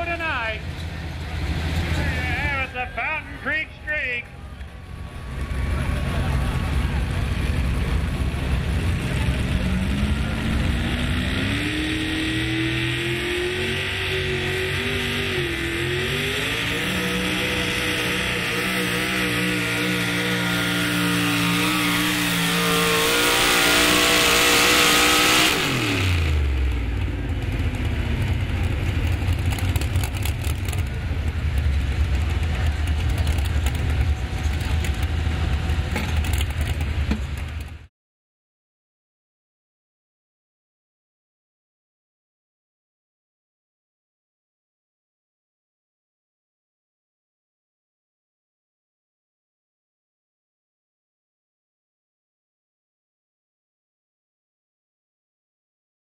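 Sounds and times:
low engine rumble: 0.0s - 24.6s, 25.6s - 37.9s
truck engine at full throttle: 0.0s - 37.9s.

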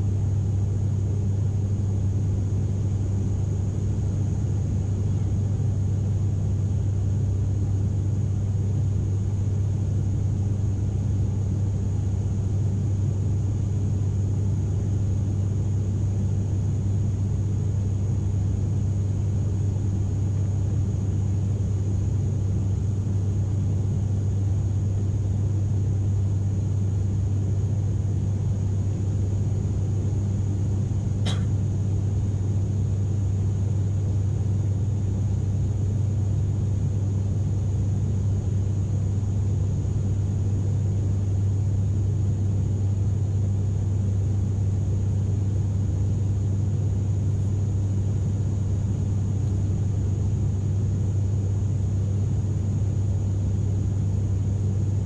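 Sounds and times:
airliner cabin drone: 0.0s - 55.0s
short click: 31.3s - 31.5s.

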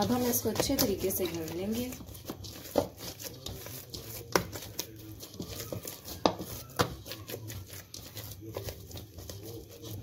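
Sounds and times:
dough slaps: 0.0s - 10.0s
dough squishing: 0.0s - 10.0s.

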